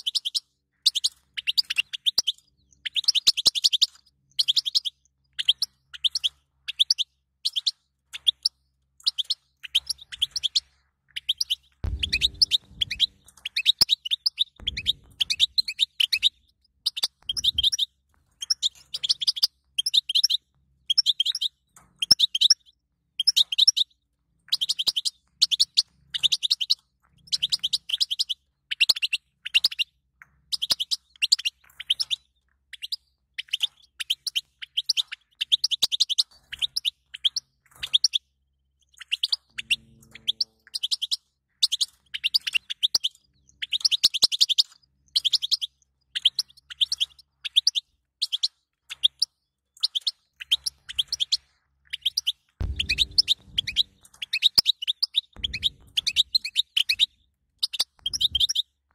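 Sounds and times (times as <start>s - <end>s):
goldfinch twittering: 11.2s - 22.6s, 39.0s - 49.2s, 49.8s - 58.6s.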